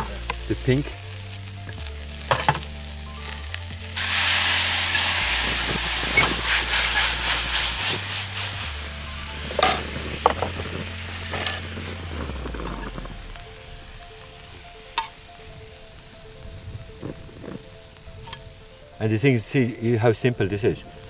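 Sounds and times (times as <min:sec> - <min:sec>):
prawns sizzling in a frying pan: 0:00.0 - 0:21.0
pan and utensils knocking: 0:02.3 - 0:02.7, 0:09.5 - 0:10.6.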